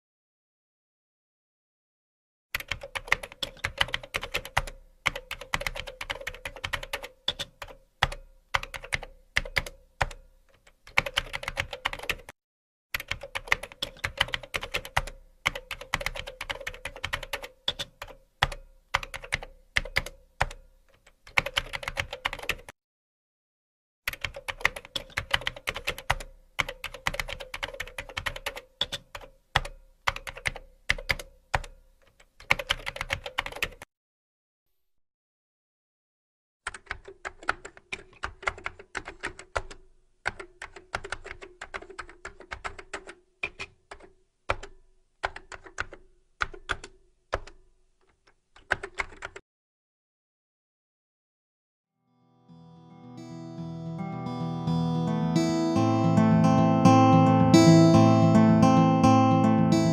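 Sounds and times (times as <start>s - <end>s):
typing on a computer keyboard: 2.6s - 12.4s, 13.0s - 22.8s, 24.1s - 33.9s, 36.6s - 49.4s.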